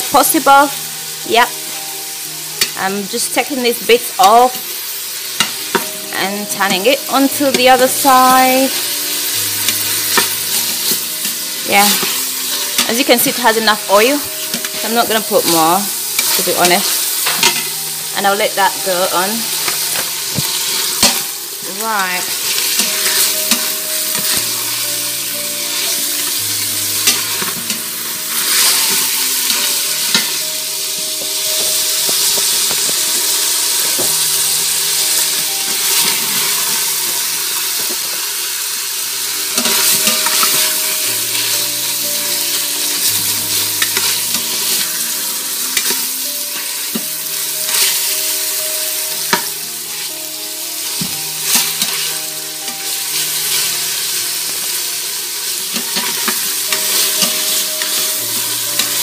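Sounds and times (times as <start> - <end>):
meat sizzling in pot: 0.0 - 59.0
spatula scraping and knocking pot: 31.2 - 34.4.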